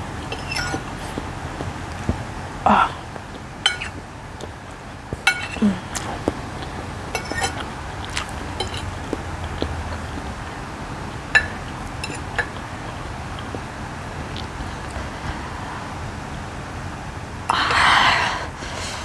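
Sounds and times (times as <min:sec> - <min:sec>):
fork clinking on ceramic plate: 0:00.3 - 0:00.9, 0:03.6 - 0:04.0, 0:05.3 - 0:05.6, 0:07.2 - 0:07.6, 0:08.6 - 0:09.0, 0:11.4 - 0:12.6.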